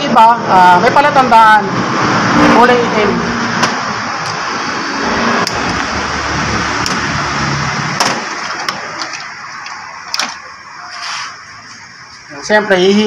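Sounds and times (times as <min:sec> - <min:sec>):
rushing background noise: 0:00.0 - 0:13.0.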